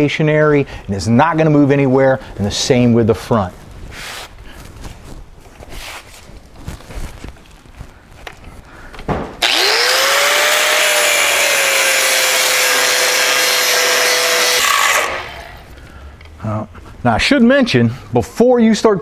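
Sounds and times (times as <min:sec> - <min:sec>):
cut-off wheel grinding steel: 0:09.4 - 0:15.6.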